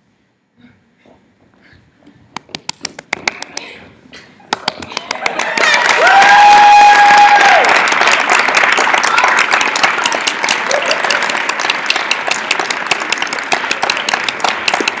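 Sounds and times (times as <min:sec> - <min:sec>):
audience applauding: 0:04.5 - 0:15.0.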